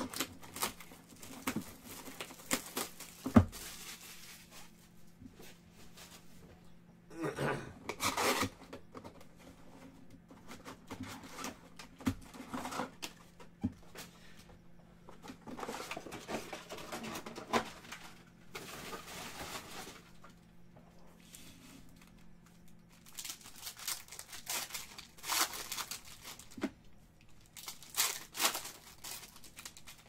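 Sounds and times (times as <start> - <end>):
card packs tapping down: 0.0 - 3.8
foil packs rustling and crinkling: 0.0 - 6.2, 7.9 - 8.7, 15.1 - 20.4, 21.2 - 30.0.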